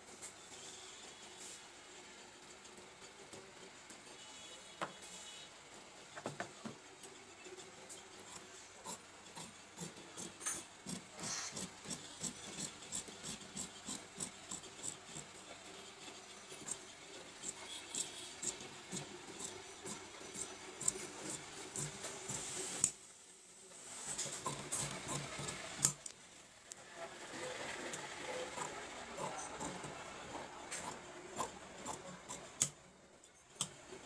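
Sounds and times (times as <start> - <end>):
shears cutting fabric: 8.2 - 23.0, 23.8 - 26.0, 26.8 - 32.8.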